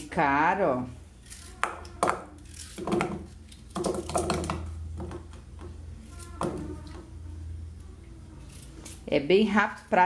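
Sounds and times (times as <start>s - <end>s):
low steady hum: 0.0s - 10.0s
knife cutting potato: 1.2s - 4.4s.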